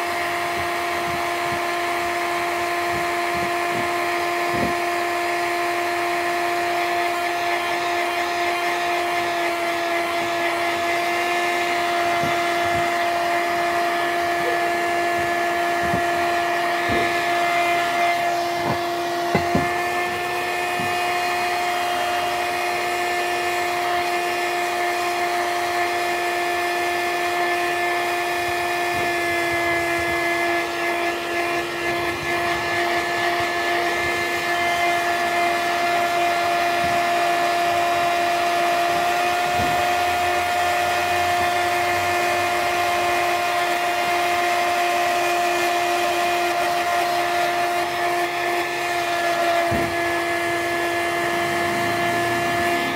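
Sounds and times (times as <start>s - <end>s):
heat gun fan hum: 0.0s - 52.9s
short knocks: 18.6s - 19.7s.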